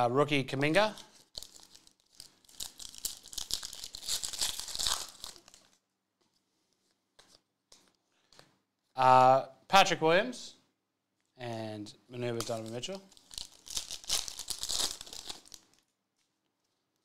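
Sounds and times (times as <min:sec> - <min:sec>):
foil wrapper tearing and crinkling: 0:01.0 - 0:05.8, 0:12.5 - 0:15.9
faint clicks of cards handled: 0:06.2 - 0:08.6.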